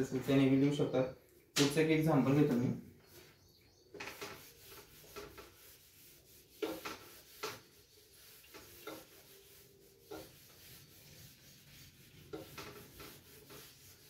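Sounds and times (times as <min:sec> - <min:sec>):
eraser rubbing on whiteboard: 0:03.1 - 0:14.0.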